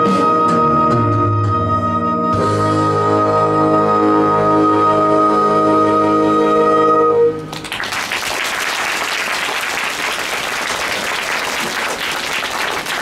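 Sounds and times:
applause: 7.5 - 13.0.

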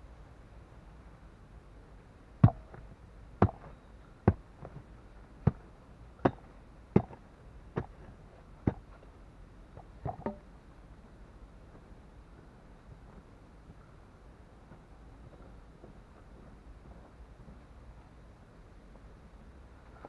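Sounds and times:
hoe chopping into hard dirt: 2.4 - 2.8, 3.4 - 3.7, 5.4 - 5.6, 6.2 - 7.2, 7.8 - 8.9.

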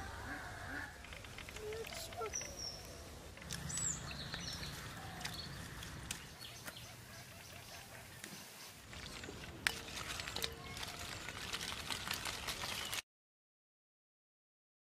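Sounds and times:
bird chirps: 1.0 - 8.7.

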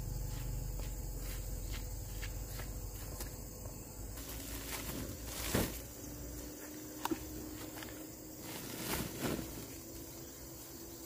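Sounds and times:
low outdoor rumble: 0.0 - 10.8
footsteps on dirt path: 0.1 - 9.5
rustle: 4.0 - 11.0.

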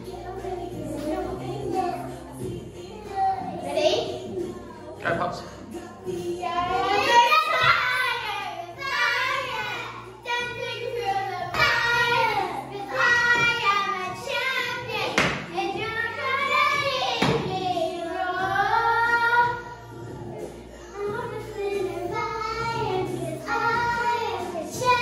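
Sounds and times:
girls singing long notes: 5.6 - 25.0.

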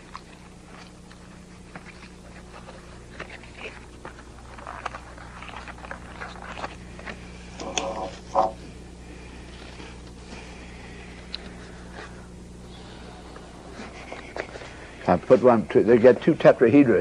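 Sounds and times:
small crackles and clicks: 0.0 - 8.6, 11.2 - 12.1
low steady hum: 0.0 - 17.0
paper rustling: 1.6 - 8.5.

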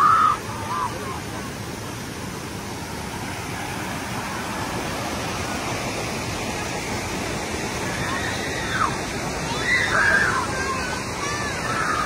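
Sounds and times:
river water rushing over rocks: 0.0 - 12.0.

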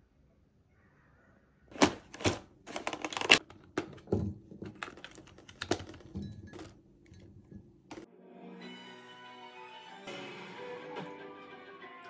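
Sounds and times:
plastic punnet crinkling: 1.7 - 6.7.

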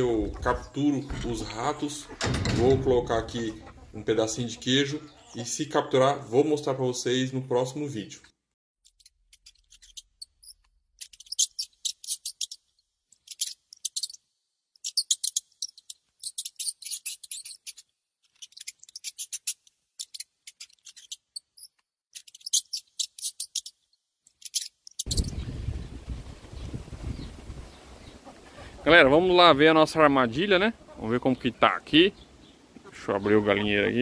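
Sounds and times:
mouse clicking and scratching: 14.8 - 25.1.

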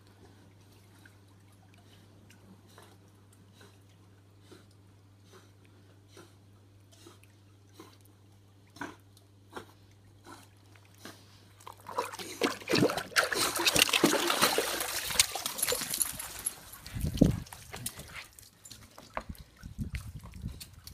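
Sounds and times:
dog splashing in pool water: 11.6 - 19.1.

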